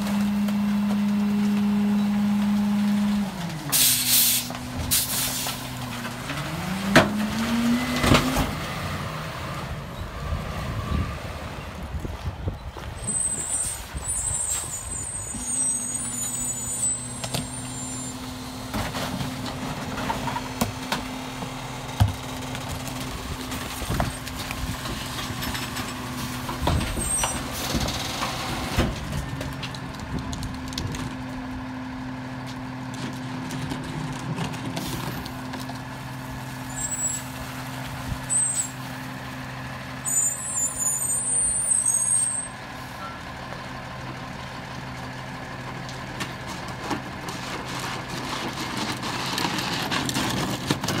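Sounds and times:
diesel engine at raised speed: 0:00.0 - 0:51.0
short hisses of air: 0:03.8 - 0:05.6.

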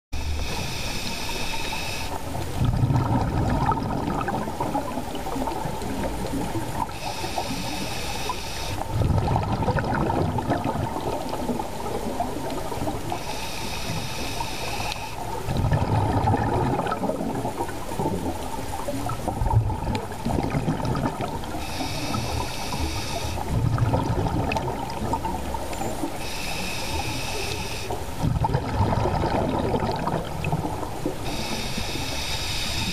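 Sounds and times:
hissing regulator inhale: 0:00.2 - 0:02.3, 0:06.8 - 0:08.9, 0:13.1 - 0:15.3, 0:21.6 - 0:23.6, 0:26.2 - 0:28.0, 0:31.2 - 0:32.9
exhaled bubbles rumbling: 0:00.2 - 0:07.8, 0:08.8 - 0:13.2, 0:15.2 - 0:27.1, 0:27.9 - 0:31.6.

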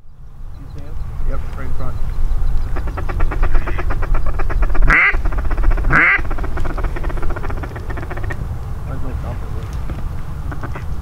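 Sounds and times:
waterfowl chattering calls: 0:00.5 - 0:11.0
long waterfowl calls: 0:01.8 - 0:11.0.

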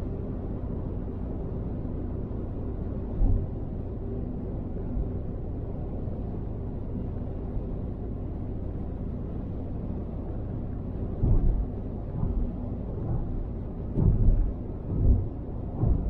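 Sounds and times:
faint engine hum: 0:00.0 - 0:16.0
road and tyre rumble: 0:00.0 - 0:16.0
low thumps: 0:11.2 - 0:16.0.

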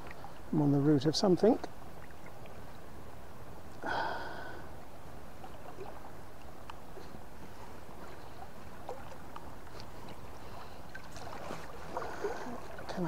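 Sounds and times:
faint ticks: 0:06.4 - 0:07.1.

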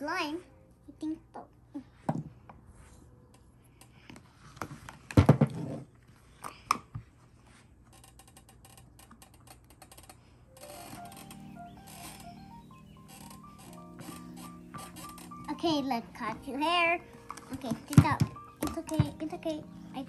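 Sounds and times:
simple tune: 0:10.5 - 0:20.0.

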